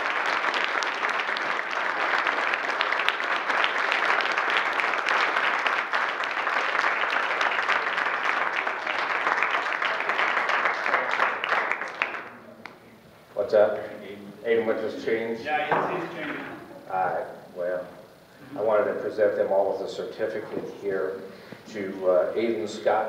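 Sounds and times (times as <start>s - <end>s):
crowd applauding: 0.0s - 12.7s.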